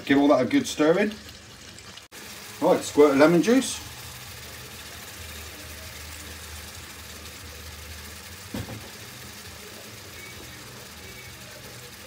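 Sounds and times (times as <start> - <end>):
short knock: 8.5 - 8.9.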